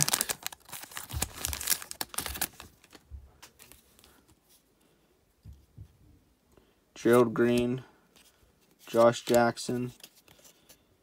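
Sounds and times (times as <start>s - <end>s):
foil wrapper tearing and crinkling: 0.0s - 3.0s
cards clicking and rustling: 7.1s - 10.8s.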